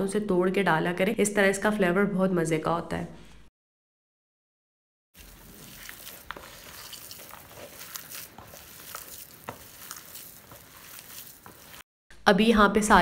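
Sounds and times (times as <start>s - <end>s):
hands squishing wet mixture: 5.2s - 11.8s.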